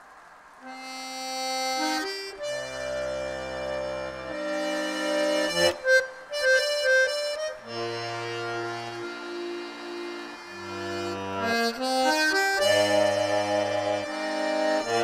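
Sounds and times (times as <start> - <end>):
button accordion playing: 0.7 - 15.0.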